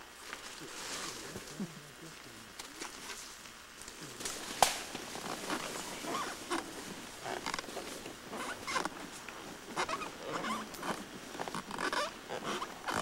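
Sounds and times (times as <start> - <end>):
leaves and branches rustling: 0.0 - 13.0
branch snapping: 3.8 - 5.7.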